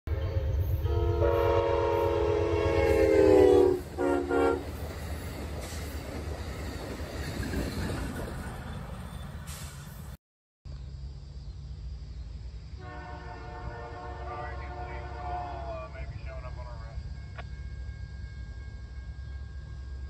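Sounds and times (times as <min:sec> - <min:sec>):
train horn blasts: 0:00.1 - 0:04.8, 0:12.8 - 0:16.8
train passing rumble: 0:00.1 - 0:10.2, 0:11.0 - 0:20.0.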